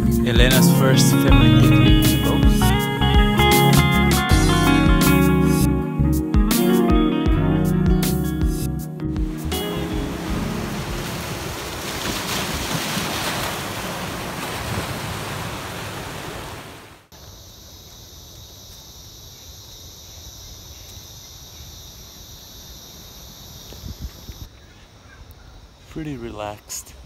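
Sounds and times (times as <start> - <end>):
surf breaking on rocky shore: 9.7 - 17.1.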